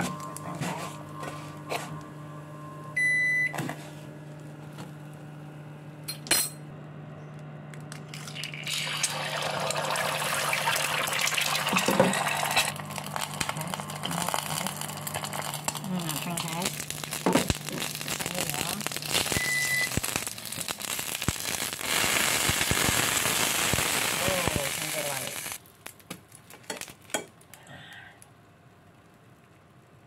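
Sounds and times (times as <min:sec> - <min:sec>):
steady low hum: 0:00.0 - 0:08.3
egg sizzling in hot oil: 0:08.1 - 0:26.0.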